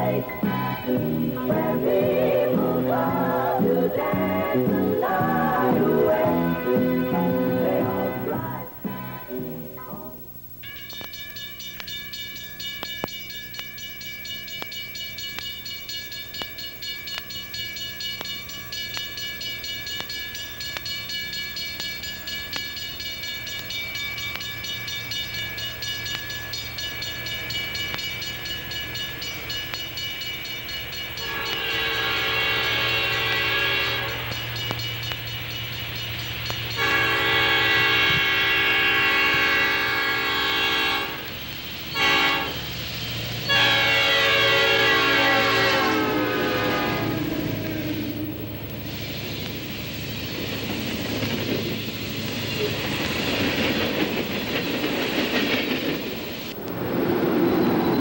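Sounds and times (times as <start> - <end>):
locomotive chime horn blasts: 10.6 - 48.7
train wheels clattering: 10.7 - 58.0.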